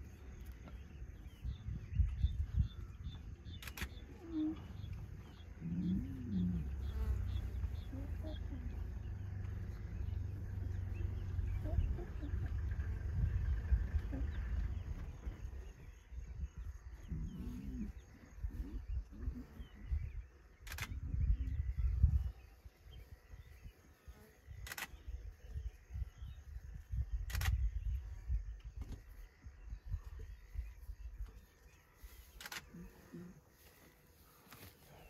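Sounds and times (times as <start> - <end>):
low rumble: 0.0 - 22.5
low animal calls: 2.6 - 22.2, 32.0 - 33.9
sharp clicks: 3.4 - 4.3, 20.6 - 21.0, 24.6 - 25.0, 27.2 - 27.7, 32.3 - 32.7.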